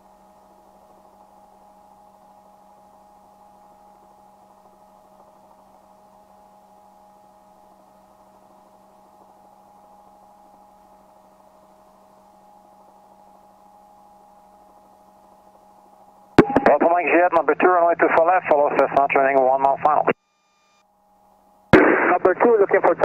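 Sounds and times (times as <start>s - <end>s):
low electrical hum with tones: 0.0s - 23.0s.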